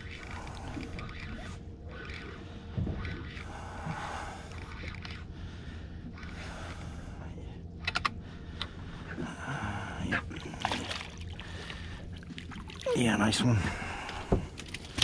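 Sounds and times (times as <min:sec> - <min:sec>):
fishing reel and line working: 0:00.0 - 0:05.3.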